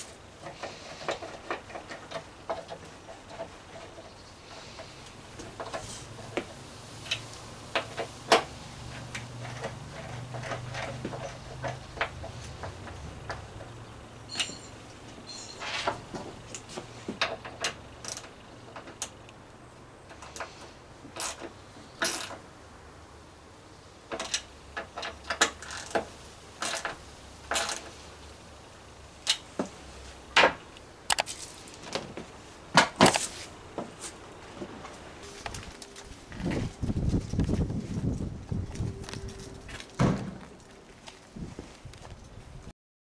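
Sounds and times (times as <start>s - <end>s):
screwdriver clicking on screws: 33.0s - 33.3s.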